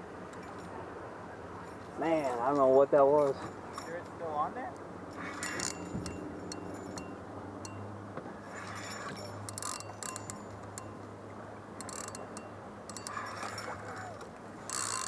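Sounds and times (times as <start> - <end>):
fishing reel clicks: 5.4 - 5.9, 9.5 - 11.0, 11.8 - 15.0.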